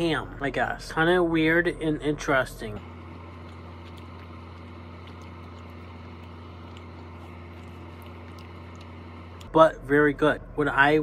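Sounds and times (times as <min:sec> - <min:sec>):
low hum: 0:00.0 - 0:11.0
mouth clicks chewing: 0:03.0 - 0:09.5.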